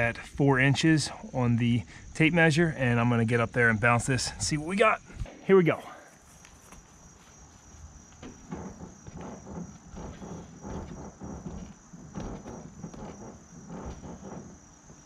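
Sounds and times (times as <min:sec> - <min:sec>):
footsteps climbing a ladder: 0:06.1 - 0:15.0.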